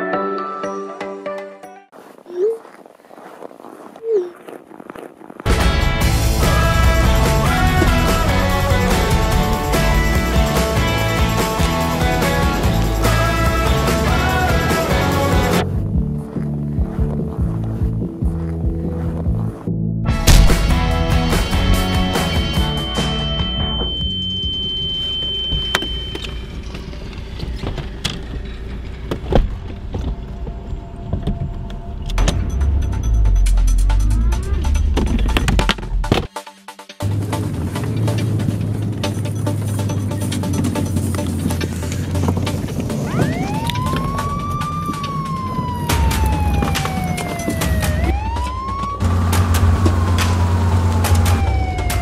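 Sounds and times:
music with deep bass: 5.5 - 29.7, 31.8 - 52.0
high steady tone: 21.9 - 27.3
siren wailing: 22.3 - 29.2, 42.9 - 52.0.

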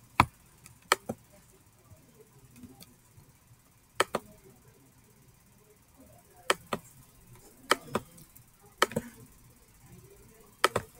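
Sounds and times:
sharp computer clicks: 0.0 - 1.3, 2.5 - 4.5, 6.4 - 9.3, 10.5 - 10.9.

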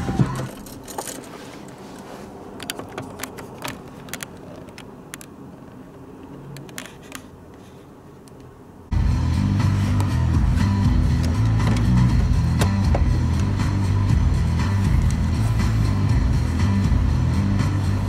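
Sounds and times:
moving car interior noise: 0.0 - 18.0
loud guitar music: 8.9 - 18.0.

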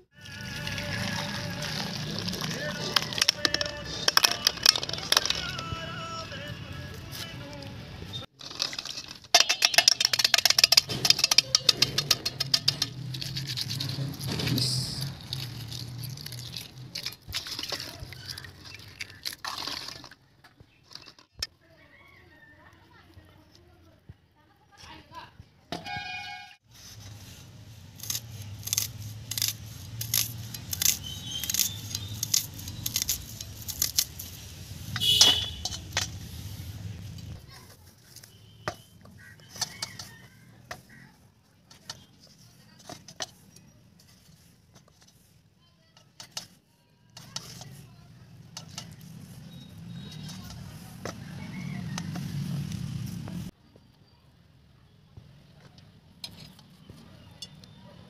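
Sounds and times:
eggshell crackling: 0.2 - 6.0, 8.2 - 21.4, 27.2 - 42.8
shell pieces clicking into bowl: 2.8 - 5.7, 8.4 - 13.9
water splashing: 15.0 - 20.2.

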